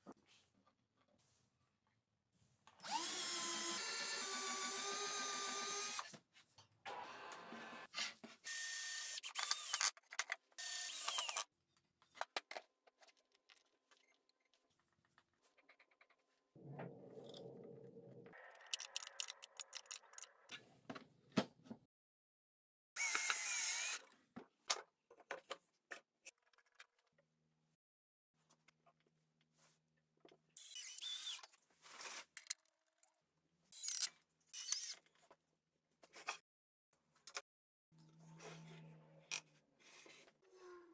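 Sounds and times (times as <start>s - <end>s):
cordless drill whining: 2.8s - 6.1s, 10.6s - 11.4s, 23.0s - 24.0s.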